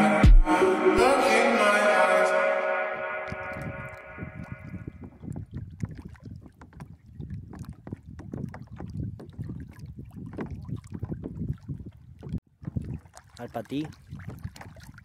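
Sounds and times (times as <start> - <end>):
water lapping against kayak: 3.2 - 15.0
wind buffeting microphone: 3.3 - 15.0.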